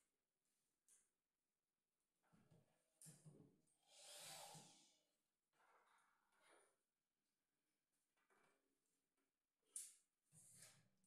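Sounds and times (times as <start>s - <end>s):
short hiss: 3.9s - 4.8s.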